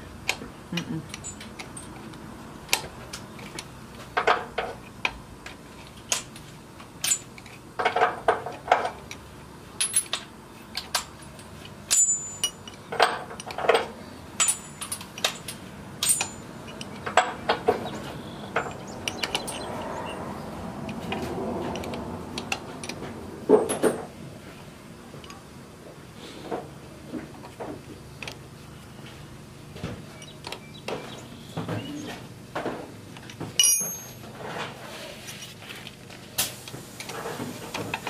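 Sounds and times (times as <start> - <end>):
metal clinks and clanks: 1.1 - 2.0, 9.8 - 10.3, 11.0 - 17.5, 18.6 - 20.2, 33.6 - 34.6.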